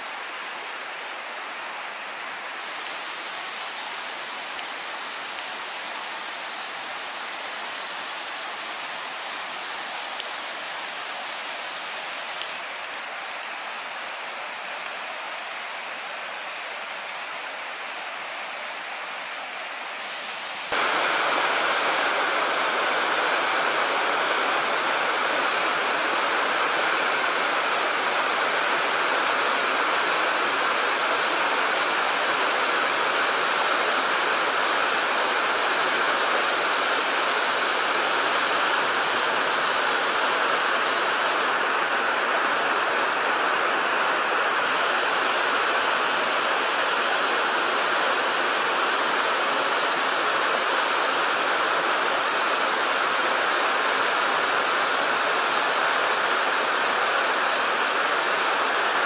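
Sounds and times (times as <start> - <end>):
water rushing over rocks: 20.0 - 59.0.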